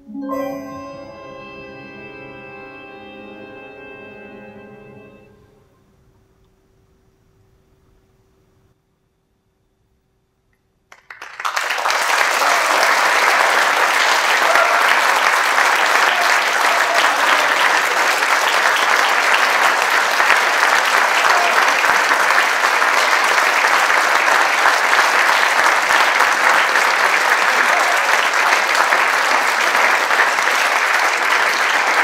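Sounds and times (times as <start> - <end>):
audience applauding: 10.9 - 32.0.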